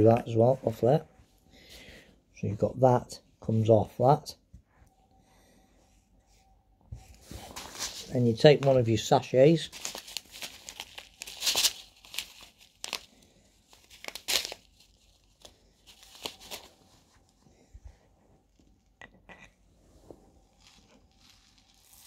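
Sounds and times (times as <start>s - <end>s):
foil sachet tearing and rustling: 9.6s - 16.8s, 20.6s - 22.0s.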